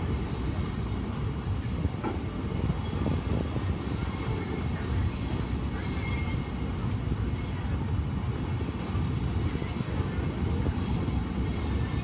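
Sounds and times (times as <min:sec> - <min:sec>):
train wheels rumbling on track: 0:00.0 - 0:12.0.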